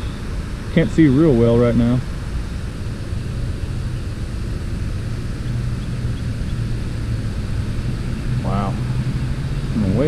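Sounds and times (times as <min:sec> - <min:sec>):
low mechanical hum: 0:00.0 - 0:10.0
outdoor background noise: 0:00.0 - 0:10.0.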